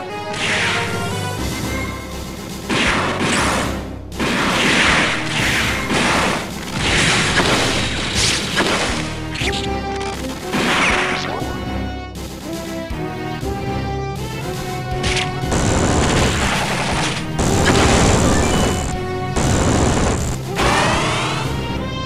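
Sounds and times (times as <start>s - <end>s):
cartoon hits and smashes: 2.4s - 9.5s, 10.4s - 11.3s, 15.0s - 21.5s
music with held notes: 9.0s - 22.0s.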